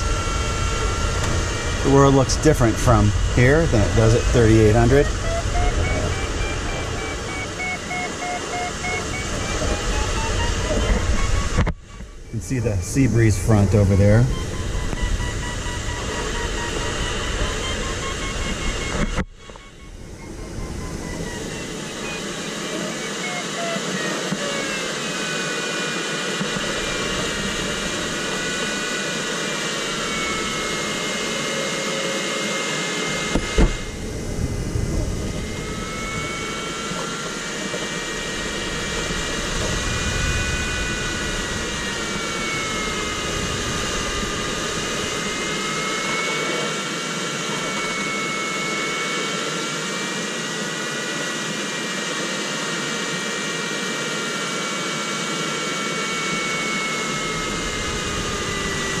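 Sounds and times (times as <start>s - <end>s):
low rumbling: 0.0s - 23.0s, 33.1s - 46.0s, 57.0s - 59.0s
variometer tone gliding in pitch: 0.0s - 59.0s.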